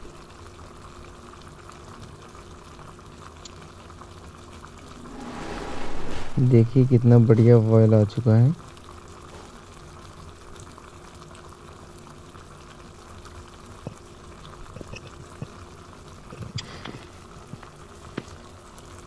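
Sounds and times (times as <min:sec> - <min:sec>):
gravy bubbling at a boil: 0:08.6 - 0:19.0.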